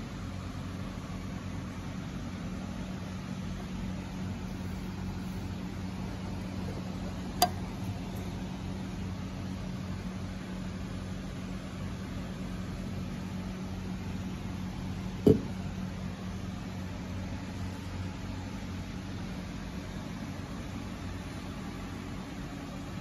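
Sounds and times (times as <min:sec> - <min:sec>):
steady low hum: 0:00.0 - 0:23.0
fuel door thumping shut: 0:15.3 - 0:15.6.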